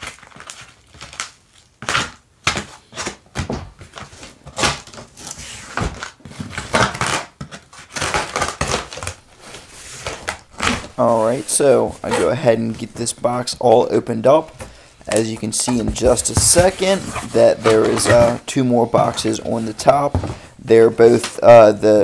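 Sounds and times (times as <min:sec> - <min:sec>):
cardboard box handled: 0:14.4 - 0:20.5.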